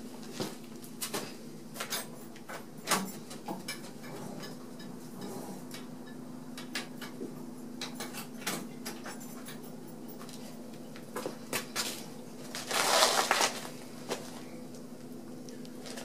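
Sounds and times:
rustling scuff on floor mat: 11.8 - 14.5.

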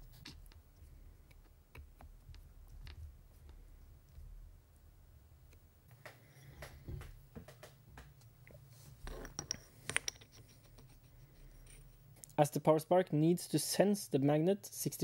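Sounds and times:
clicks and metal knocks of handling parts: 5.5 - 12.4.

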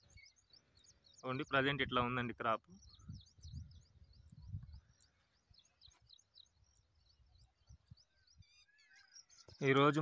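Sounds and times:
small birds chirping: 0.0 - 10.0
low wind rumble on microphone: 1.8 - 5.6.

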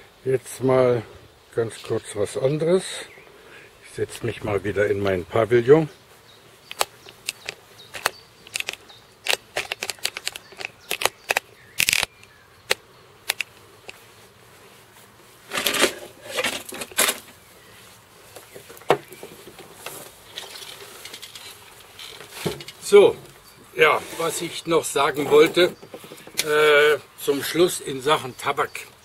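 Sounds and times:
camera handling clicks and knocks: 6.7 - 14.0
rustling and knocking on swing bench: 18.3 - 23.4, 25.1 - 26.5.

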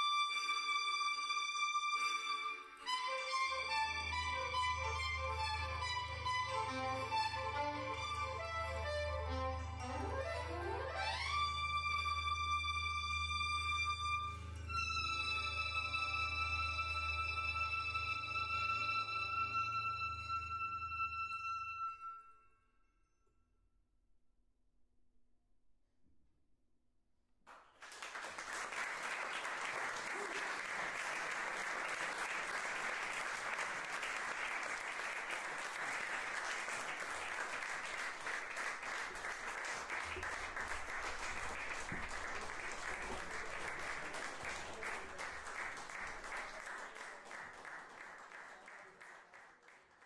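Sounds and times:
audience applauding: 27.5 - 50.0.

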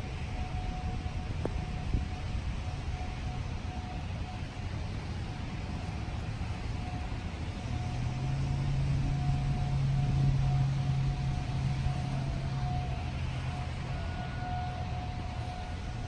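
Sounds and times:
low outdoor rumble: 0.0 - 16.0
vehicle passing: 5.9 - 16.0.

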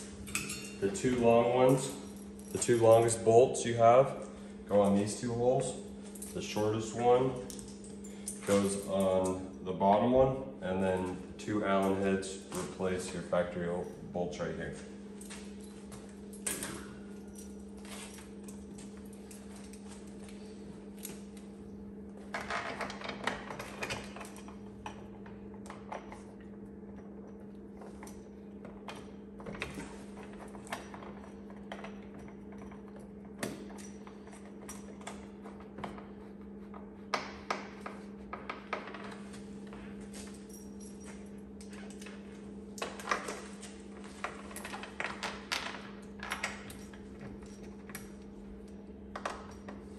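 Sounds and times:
metal clinks and knocks: 0.0 - 5.3, 26.9 - 49.9
steady low hum: 0.0 - 49.9.

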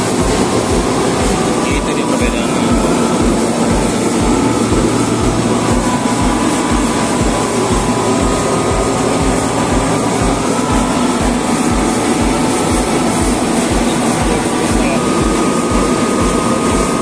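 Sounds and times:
air compressor humming and throbbing: 0.0 - 17.0.

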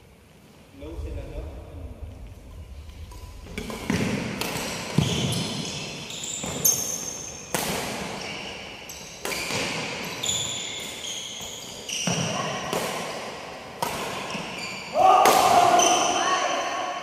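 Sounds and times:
racket hitting shuttlecock: 3.6 - 11.0, 12.0 - 14.6
sneakers squeaking on floor: 3.7 - 15.0.

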